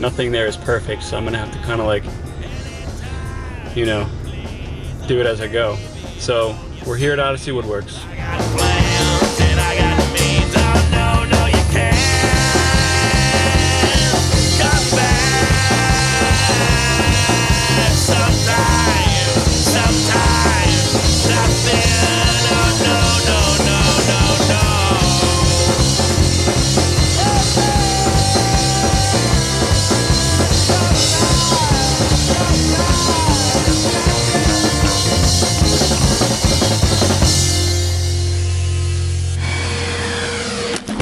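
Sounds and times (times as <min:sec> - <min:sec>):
rock song with drums and vocals: 0:00.0 - 0:41.0.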